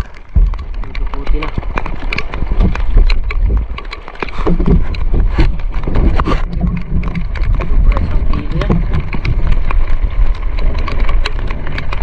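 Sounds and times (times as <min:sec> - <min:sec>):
low rumble: 0:00.0 - 0:12.0.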